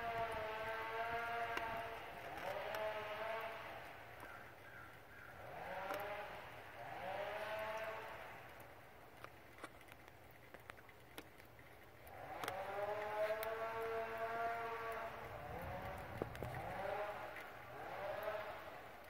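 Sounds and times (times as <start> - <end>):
chainsaw engine revving: 0.0 - 3.9, 5.4 - 8.4, 12.1 - 19.0.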